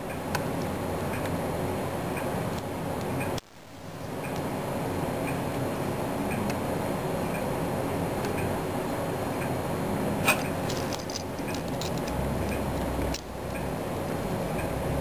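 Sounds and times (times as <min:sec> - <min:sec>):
background hum: 0:00.0 - 0:15.0.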